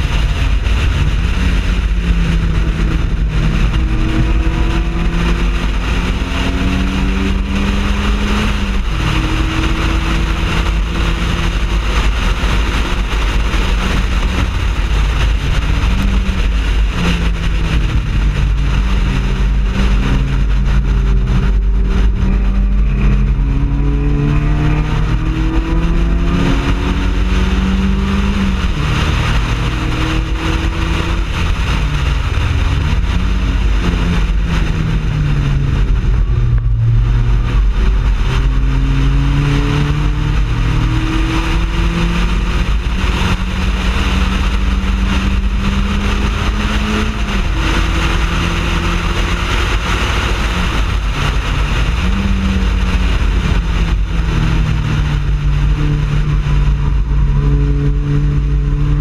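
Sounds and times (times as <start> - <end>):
race car engine accelerating: 0.0 - 59.0.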